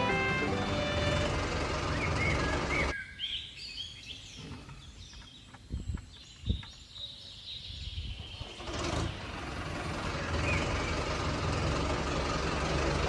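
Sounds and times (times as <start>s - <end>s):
music: 0.0s - 1.2s
birds chirping: 0.0s - 11.6s.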